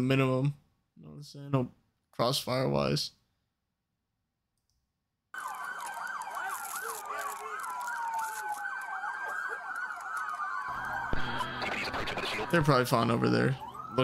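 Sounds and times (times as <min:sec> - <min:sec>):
police sirens wailing: 0:05.4 - 0:14.0.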